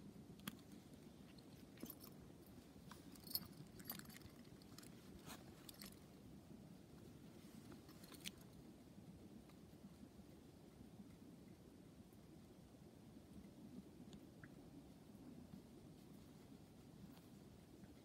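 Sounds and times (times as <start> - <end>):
soft clicks and rustles of leather sack: 0.3 - 6.2, 6.9 - 8.7, 15.5 - 18.0.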